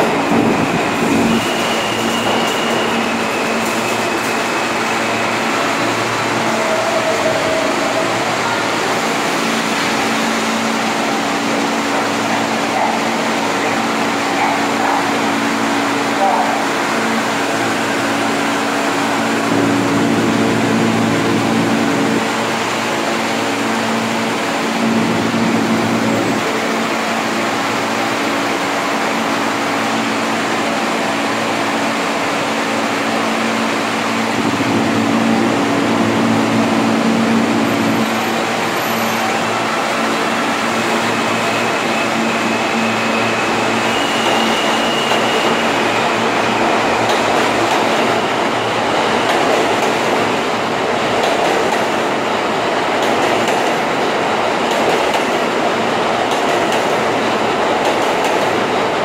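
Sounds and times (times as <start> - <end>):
clatter of train wheels: 0.0 - 8.1, 37.0 - 59.0
subway train humming: 0.0 - 59.0.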